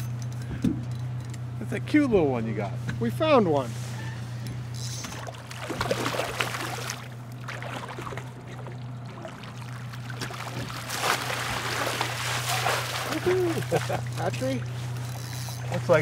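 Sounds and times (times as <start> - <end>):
steady low hum: 0.0 - 16.0
water sloshing in landing net: 5.0 - 15.8
fish thrashing and splashing: 5.1 - 15.7.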